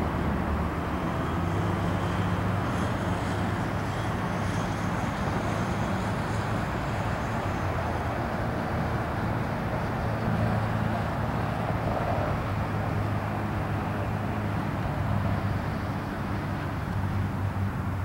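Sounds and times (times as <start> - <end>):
distant road traffic rumble: 0.0 - 18.0.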